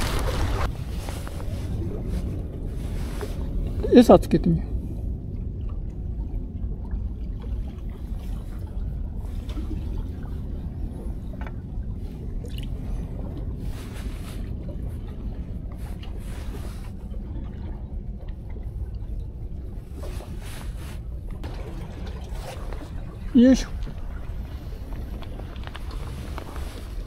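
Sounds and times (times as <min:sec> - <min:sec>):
rustling of bait and line: 0:00.0 - 0:03.9, 0:07.8 - 0:17.8, 0:19.6 - 0:21.5, 0:22.2 - 0:27.0
sea water sloshing and gurgling: 0:00.0 - 0:27.0.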